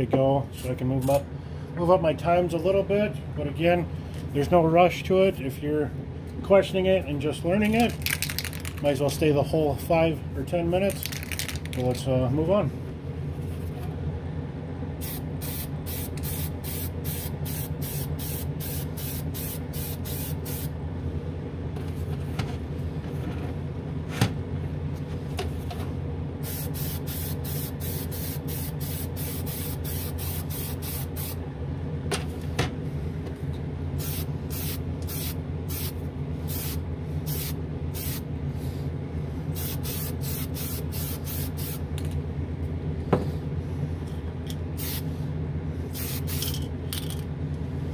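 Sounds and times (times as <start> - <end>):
fan humming: 0.0 - 47.9
aerosol can spraying in bursts: 15.0 - 20.7, 26.4 - 31.4, 34.0 - 38.2, 39.6 - 41.8, 44.8 - 45.0, 46.0 - 46.5.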